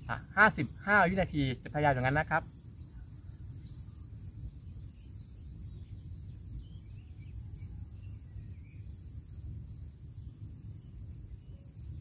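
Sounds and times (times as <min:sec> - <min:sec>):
insects chirping: 0:00.0 - 0:12.0
faint bird chirps: 0:02.8 - 0:09.5.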